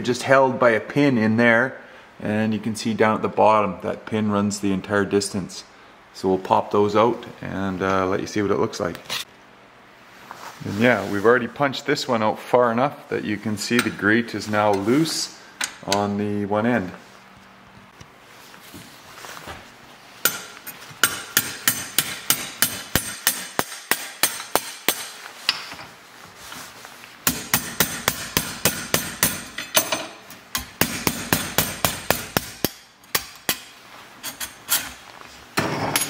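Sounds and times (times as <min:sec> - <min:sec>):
hammer striking steel punch: 0:20.2 - 0:25.6, 0:27.2 - 0:33.7.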